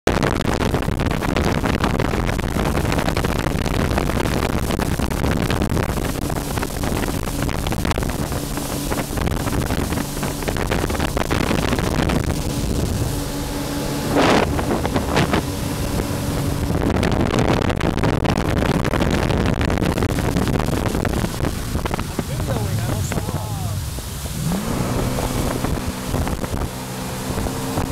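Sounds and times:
water noise: 0.0 - 27.9
wind rush on microphone: 0.0 - 27.9
jet ski engine running: 0.1 - 27.9.

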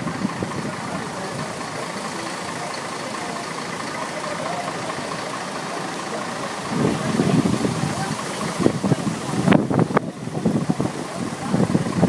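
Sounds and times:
street traffic: 0.0 - 12.0
vehicle engine running: 0.0 - 12.0
wind rushing: 6.7 - 12.0.

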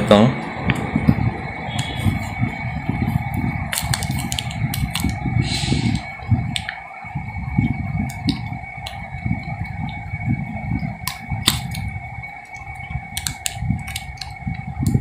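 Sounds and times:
steady high hum: 0.0 - 15.0
scissors snipping plastic wrap: 13.2 - 14.3.

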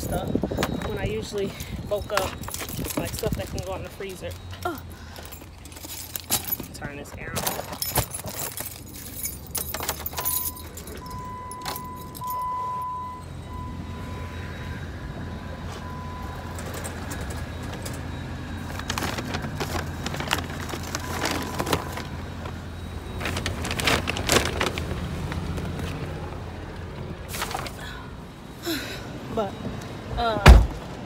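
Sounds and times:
keys rattling: 0.0 - 12.5
metal shopping cart rattling: 23.2 - 25.2.

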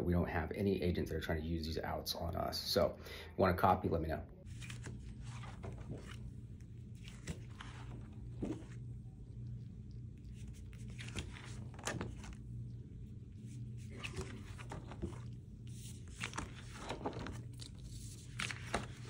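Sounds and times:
low hum: 4.3 - 19.0
plastic sheets crinkling: 4.4 - 19.0.

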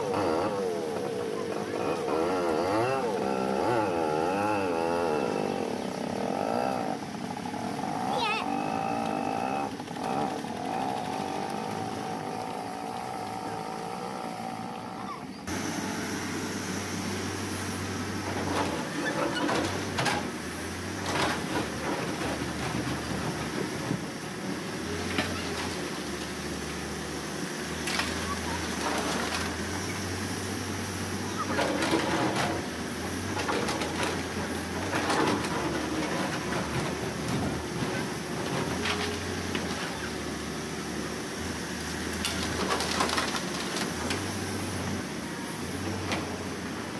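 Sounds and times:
diesel engine under load: 0.0 - 46.9
rubble knocking and clanking: 31.4 - 40.0.

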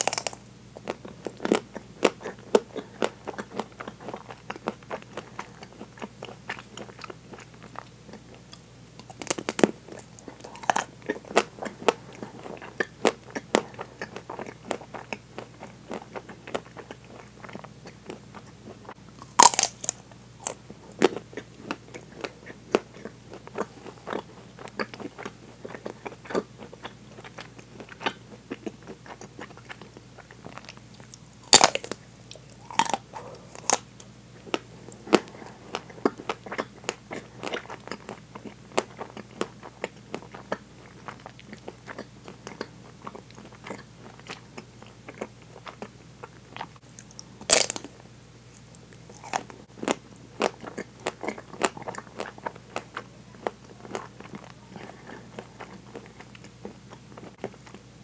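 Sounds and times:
crisp chewing crunch: 0.0 - 58.0
chocolate shell cracking bites: 19.3 - 20.0.

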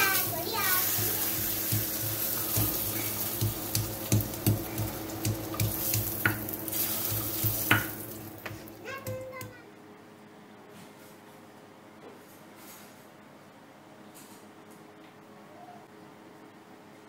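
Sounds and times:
meat sizzling in a frying pan: 0.0 - 8.8.

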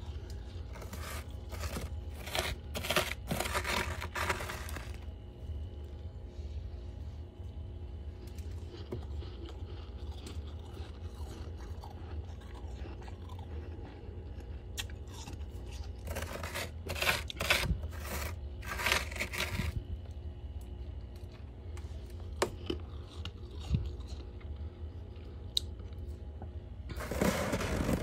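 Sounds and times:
frost crunching: 0.0 - 6.3, 8.1 - 20.0, 26.9 - 28.0
steady low hum: 0.0 - 28.0
frost scratching: 0.4 - 5.1, 15.8 - 19.8, 26.9 - 28.0.

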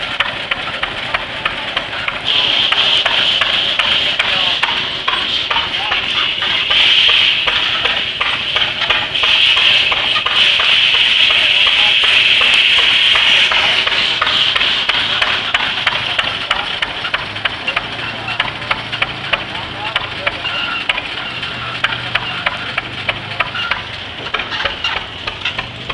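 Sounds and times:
rapid sharp knocks: 0.2 - 21.2, 21.8 - 25.9.

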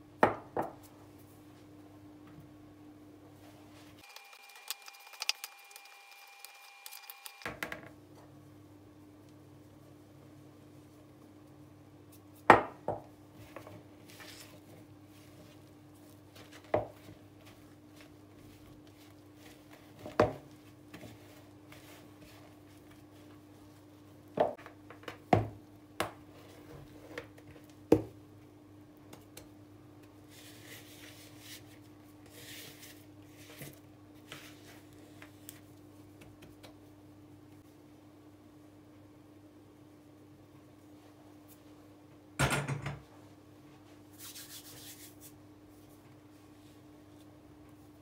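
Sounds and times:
dough scraped on countertop: 30.3 - 35.3, 44.1 - 45.4.

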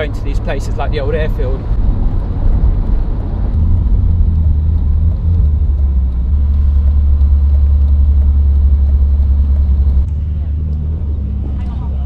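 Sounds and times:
car engine rumbling at low revs: 0.0 - 12.0.

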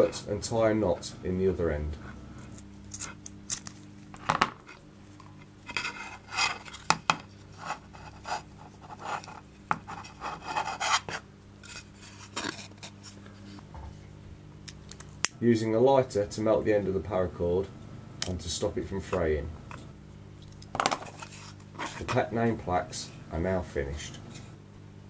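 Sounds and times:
cord rustling and rubbing: 7.4 - 13.7, 20.8 - 22.3.

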